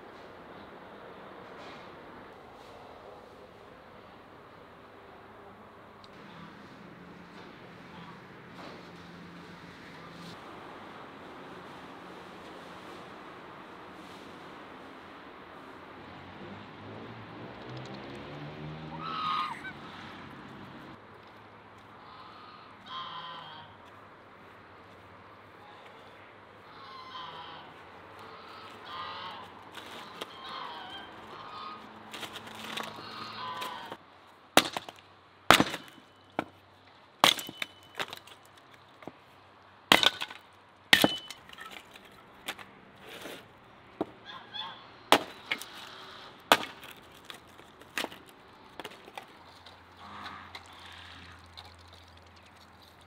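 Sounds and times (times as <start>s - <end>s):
fowl calling: 18.9s - 19.8s, 22.0s - 23.8s, 25.6s - 32.0s, 32.8s - 34.0s, 44.2s - 45.0s
hatchet chopping firewood: 34.6s - 36.6s, 37.2s - 38.4s, 39.9s - 42.6s, 45.1s - 49.3s.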